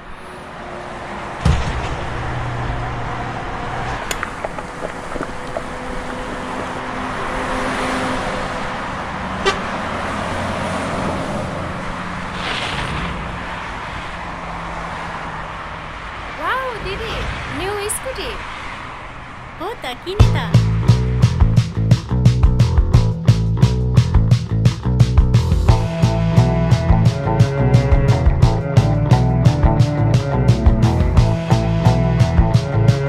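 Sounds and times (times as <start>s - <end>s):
vehicle engines running: 0.0s - 33.0s
car horns honking: 9.3s - 10.0s.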